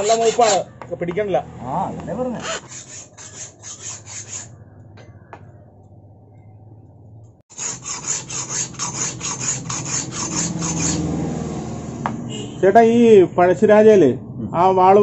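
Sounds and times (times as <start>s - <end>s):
file rasping on steel: 0.0s - 0.7s, 2.2s - 4.6s, 7.5s - 11.2s.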